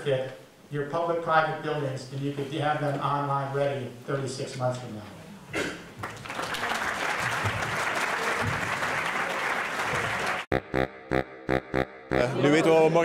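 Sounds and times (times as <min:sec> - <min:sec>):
audience applauding: 0:06.0 - 0:10.5.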